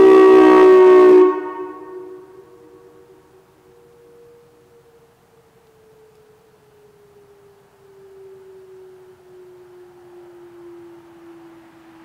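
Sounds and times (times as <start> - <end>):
electronic siren sliding down: 2.8 - 12.0.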